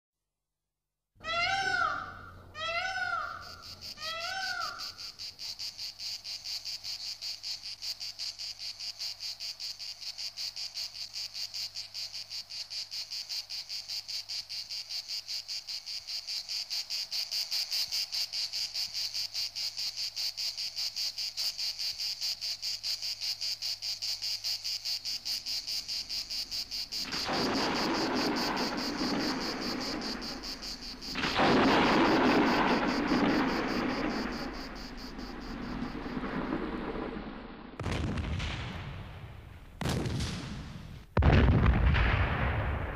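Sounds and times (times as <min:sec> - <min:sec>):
short arching animal calls: 0:01.2 - 0:05.2
insect chirping: 0:01.3 - 0:38.2.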